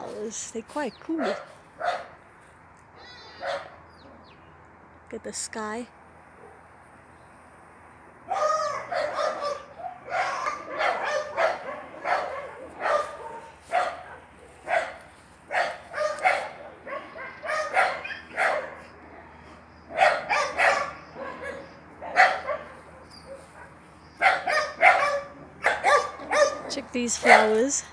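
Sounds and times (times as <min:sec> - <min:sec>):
dog barking: 0:01.2 - 0:02.2, 0:03.4 - 0:03.8, 0:08.3 - 0:19.0, 0:19.9 - 0:27.8.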